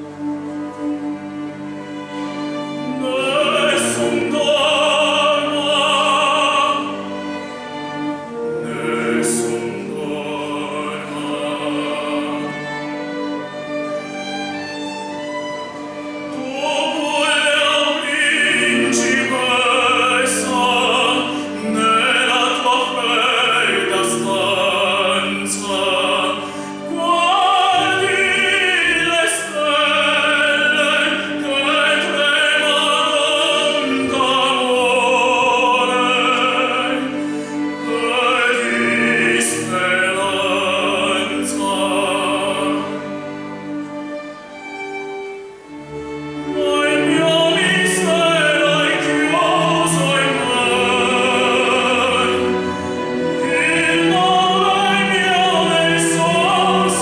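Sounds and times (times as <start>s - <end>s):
string orchestra playing: 0.0s - 57.0s.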